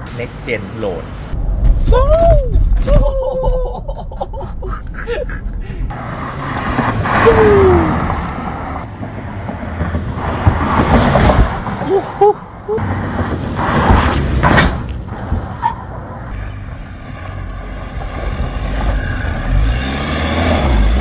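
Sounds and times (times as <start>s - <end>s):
cabin road noise rumble: 0.0s - 21.0s
passing car tyre and engine noise: 5.9s - 21.0s.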